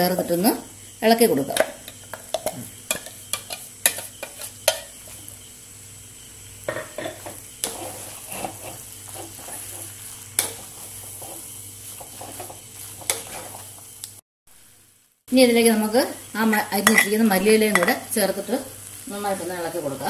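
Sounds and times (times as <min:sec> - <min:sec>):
food sizzling in oil: 0:00.0 - 0:20.0
wooden spoon stirring food: 0:07.6 - 0:14.0
steel bowl tapping a clay pot: 0:16.9 - 0:18.0.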